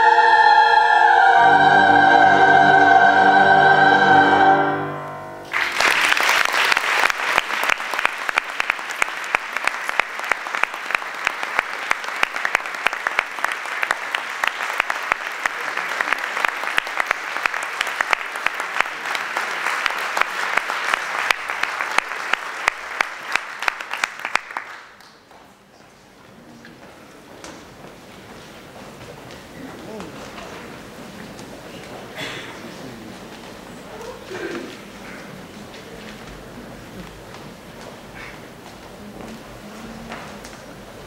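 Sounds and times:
women's choir holding a chord: 0:00.0 - 0:05.5
audience applauding: 0:05.4 - 0:25.2.

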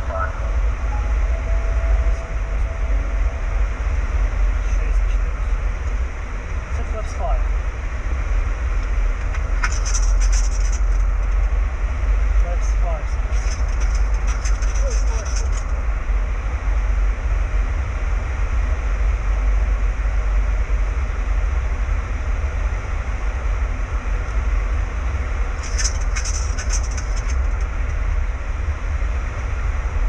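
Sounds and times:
aircraft cabin rumble: 0:00.0 - 0:30.0
high crackling clicks: 0:25.6 - 0:27.7.

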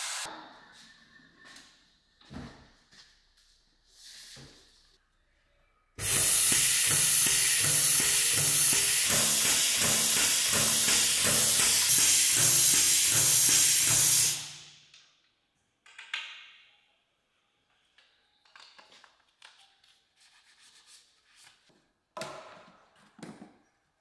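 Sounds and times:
oil dispenser hiss: 0:06.0 - 0:14.6.

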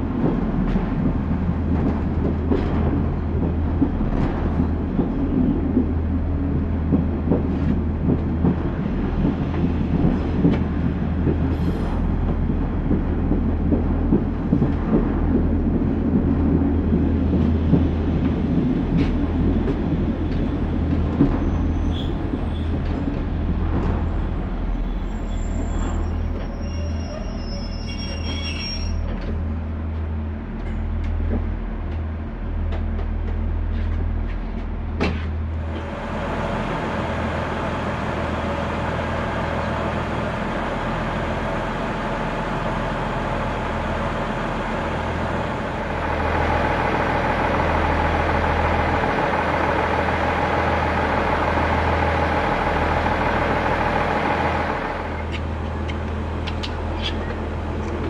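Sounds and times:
train wheels rolling: 0:00.0 - 0:58.0
wheel squeals: 0:24.8 - 0:29.3
diesel engine drone: 0:29.6 - 0:58.0.

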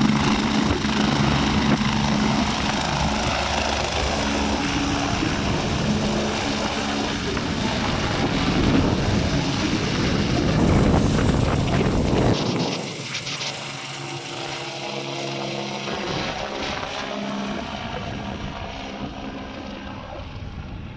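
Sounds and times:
helicopter rotor and turbine: 0:00.0 - 0:20.9.

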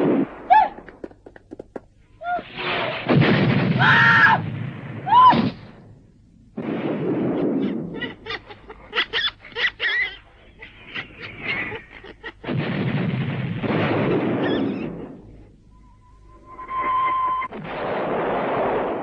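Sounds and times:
cartoon explosions: 0:00.0 - 0:01.1, 0:02.2 - 0:05.9, 0:06.6 - 0:15.5, 0:16.3 - 0:19.0
shrill cries: 0:08.0 - 0:12.5.

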